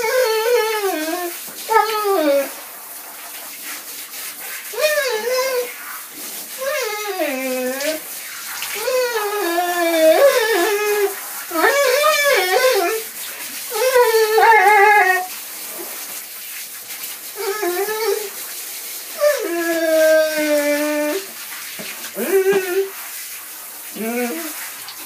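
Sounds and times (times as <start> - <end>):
dog howling: 0.0 - 2.5, 6.6 - 8.0, 8.8 - 13.1, 13.7 - 15.3, 17.4 - 18.3, 19.2 - 21.3, 22.2 - 22.9, 24.0 - 24.5
shower water running in bathtub: 0.0 - 25.0.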